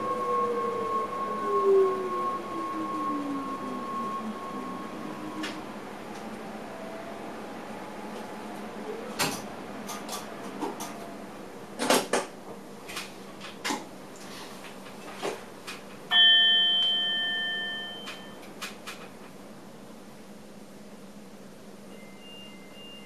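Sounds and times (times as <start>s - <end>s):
bell-like chime: 16.1s - 18.4s, 21.9s - 23.0s.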